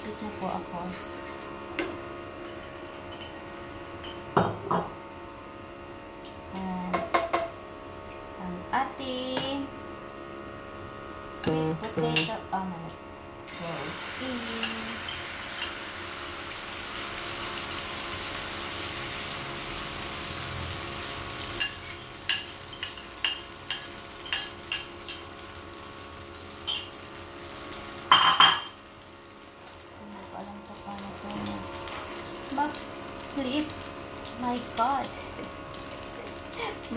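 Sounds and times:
egg sizzling in a pan: 13.5s - 36.9s
dishes clattering: 28.1s - 28.8s.

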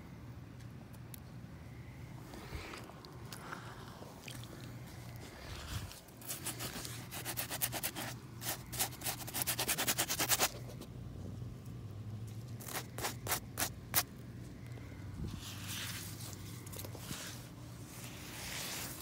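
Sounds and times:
hand rubbing mud on rubber boot: 4.3s - 10.9s, 15.2s - 19.0s.

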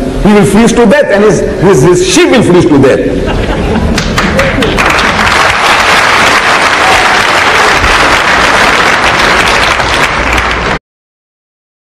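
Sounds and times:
audience applauding: 3.9s - 10.8s.

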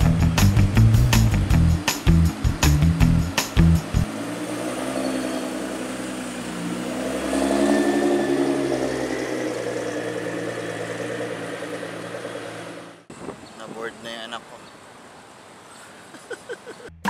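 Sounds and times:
music with heavy beat: 0.0s - 4.1s
car engine pulling away: 0.0s - 13.4s.

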